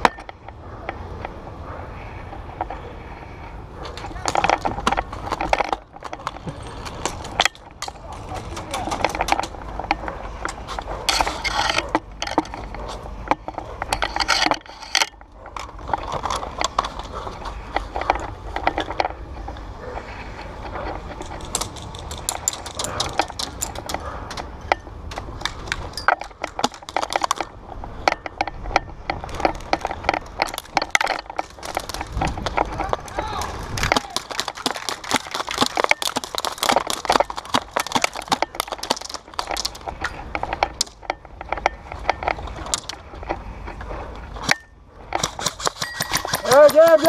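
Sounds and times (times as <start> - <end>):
sharp clicks and knocks: 3.8 - 47.0.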